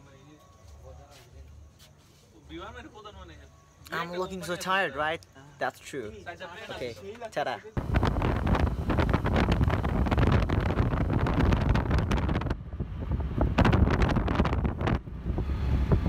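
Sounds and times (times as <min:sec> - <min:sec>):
vehicle low running rumble: 0:07.8 - 0:16.0
wind buffeting microphone: 0:07.8 - 0:16.0.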